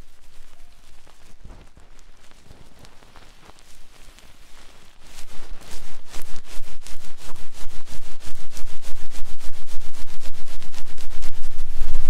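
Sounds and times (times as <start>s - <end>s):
scratching on microphone: 0.0s - 12.0s
microphone handling rumble: 1.0s - 3.6s.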